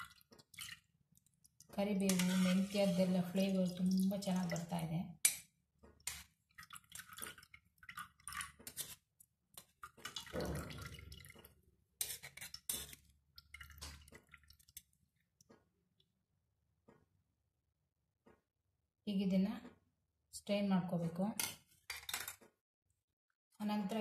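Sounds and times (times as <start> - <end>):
ladle scraping metal strainer: 2.0 - 3.5, 12.0 - 13.1
oil dripping into pan: 12.5 - 16.1.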